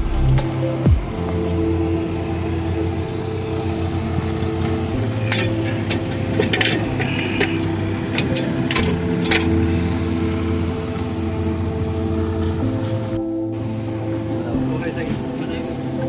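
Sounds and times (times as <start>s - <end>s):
background music low notes: 0.0s - 16.0s.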